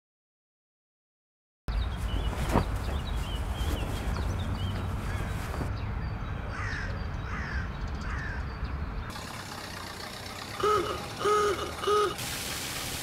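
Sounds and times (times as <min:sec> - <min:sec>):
crow cawing: 0:06.5 - 0:08.4, 0:10.6 - 0:12.2
car horn honking: 0:10.5 - 0:12.2.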